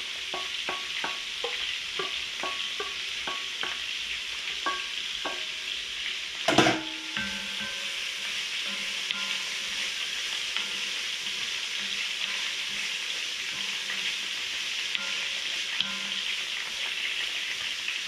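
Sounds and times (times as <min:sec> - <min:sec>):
vegetables sizzling in a pot: 0:00.0 - 0:18.0
spoon tapping a metal bowl: 0:00.3 - 0:03.8, 0:04.6 - 0:05.6, 0:06.5 - 0:07.9, 0:15.0 - 0:16.3
spoon stirring a pot: 0:00.3 - 0:03.9, 0:04.6 - 0:05.7
metal bowl clattering down: 0:06.5 - 0:07.8.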